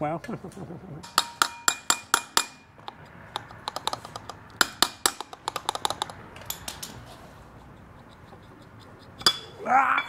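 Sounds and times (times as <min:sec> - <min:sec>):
hand tools clinking on metal: 0:01.0 - 0:02.9, 0:09.2 - 0:10.0.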